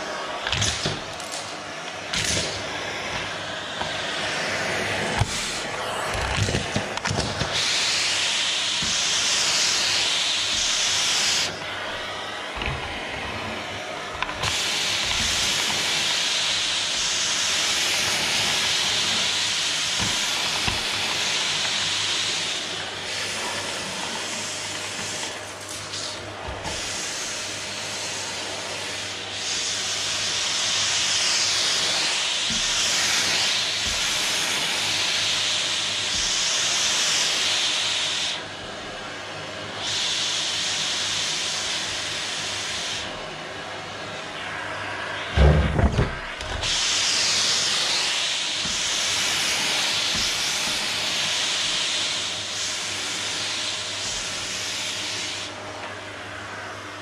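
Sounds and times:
vacuum cleaner running: 0:00.0 - 0:57.0
vacuum nozzle knocking: 0:00.4 - 0:22.2, 0:30.6 - 0:36.8, 0:45.4 - 0:51.8.

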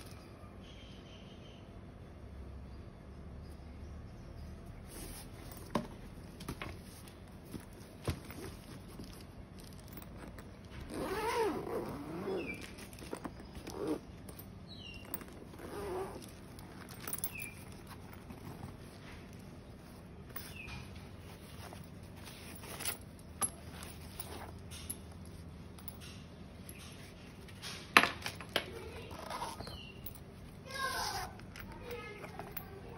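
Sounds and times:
zip being pulled open: 0:10.7 - 0:14.2, 0:15.2 - 0:18.8, 0:29.0 - 0:29.7, 0:30.9 - 0:31.4.

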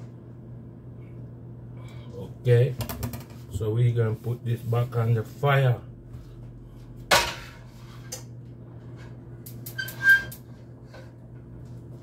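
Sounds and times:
brief high squeak: 0:09.8 - 0:10.4.

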